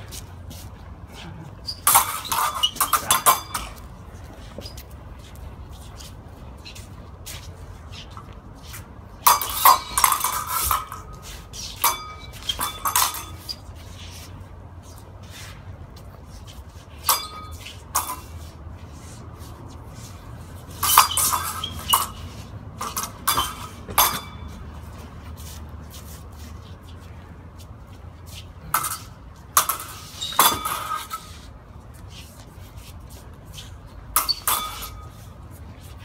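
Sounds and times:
steel swords clashing: 1.1 - 3.9, 9.2 - 14.0, 17.0 - 18.6, 20.2 - 24.7, 28.4 - 31.5, 34.1 - 35.4.

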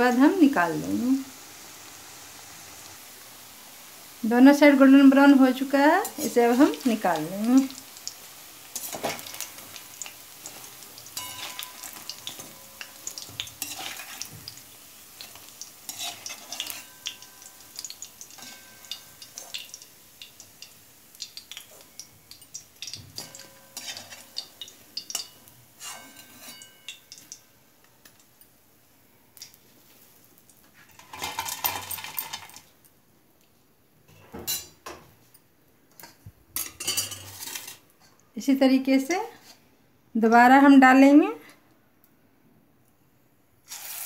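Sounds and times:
oil sizzling: 0.0 - 32.8, 36.6 - 37.9, 43.6 - 44.0
metal spoon scraping and clinking: 10.4 - 14.4, 15.2 - 19.8, 21.5 - 27.4, 36.0 - 37.8.

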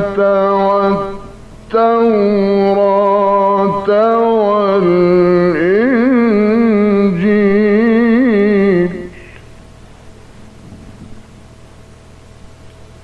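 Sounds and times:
man chanting: 0.0 - 9.4.

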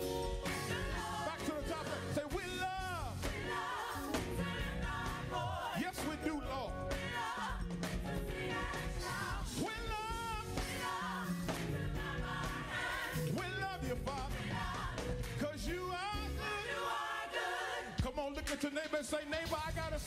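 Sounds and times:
gospel singers: 0.0 - 19.4
band with bass and drums: 6.0 - 15.5.

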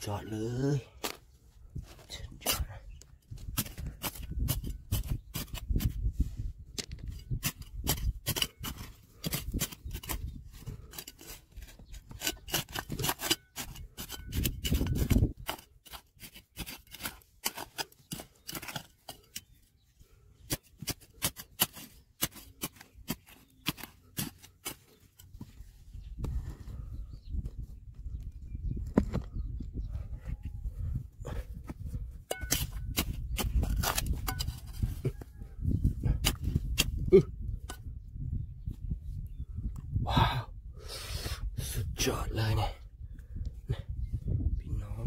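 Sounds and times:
hand tool scraping stone and gravel: 3.4 - 6.2, 6.8 - 19.8, 20.4 - 25.6, 32.2 - 35.2.

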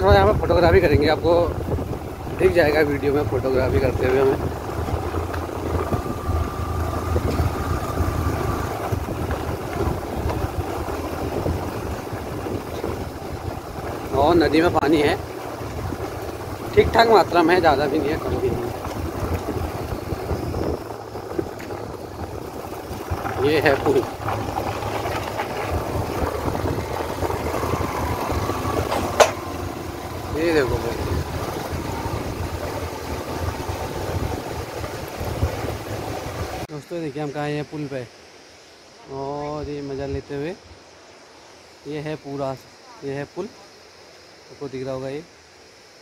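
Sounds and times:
motorcycle engine rumble: 0.0 - 36.7
wind buffeting microphone: 0.0 - 36.7.

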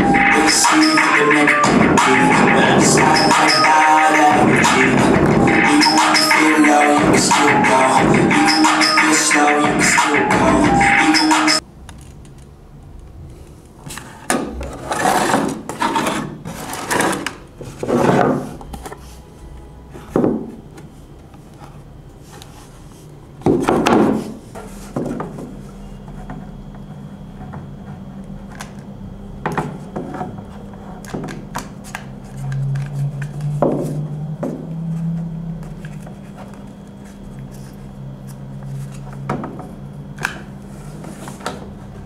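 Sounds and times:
knocks and scrapes on wooden workbench: 14.3 - 18.6.

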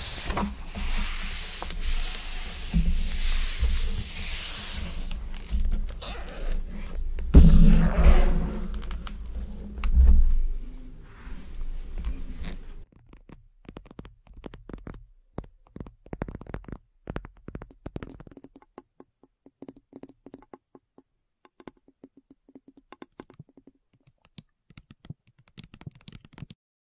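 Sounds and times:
sharp clicks and taps: 12.9 - 26.6.

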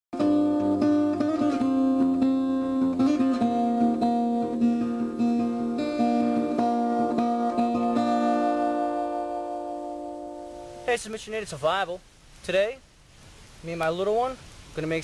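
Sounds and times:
acoustic guitar music: 0.2 - 11.9.

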